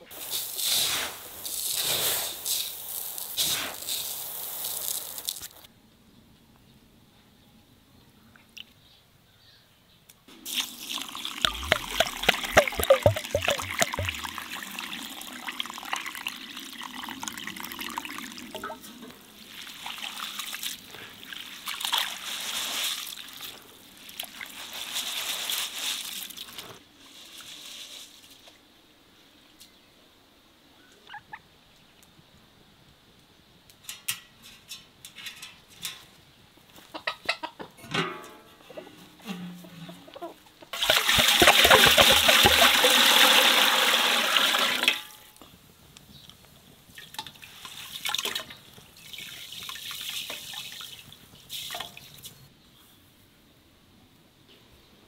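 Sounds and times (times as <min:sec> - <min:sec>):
water sloshing over rice in pot: 0:10.5 - 0:15.2, 0:40.8 - 0:45.0.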